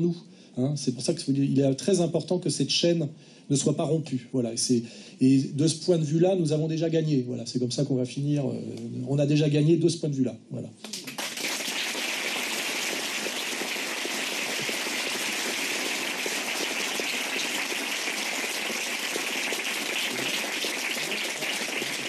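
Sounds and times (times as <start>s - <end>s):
audience applauding: 10.9s - 22.0s.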